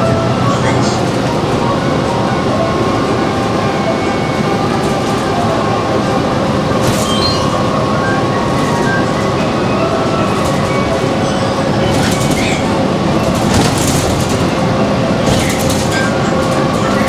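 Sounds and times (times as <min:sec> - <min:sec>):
bus cabin rattling: 0:00.0 - 0:17.0
bus engine and road rumble: 0:00.0 - 0:17.0
short high squeak: 0:06.9 - 0:09.1.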